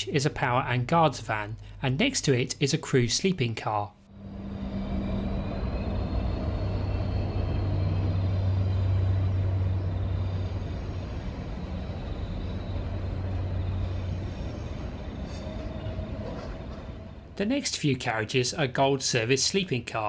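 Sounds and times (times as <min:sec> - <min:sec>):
diesel locomotives droning: 0:00.0 - 0:02.4, 0:04.0 - 0:20.0
train carriages rumbling on rails: 0:04.2 - 0:18.0.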